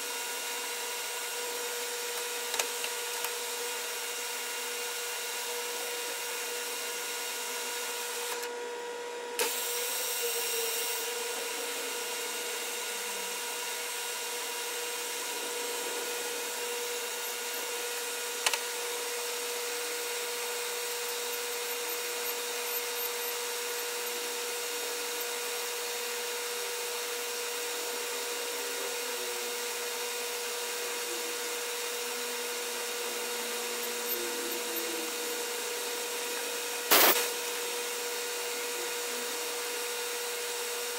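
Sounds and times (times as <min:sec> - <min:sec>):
lathe humming: 0:09.4 - 0:40.9.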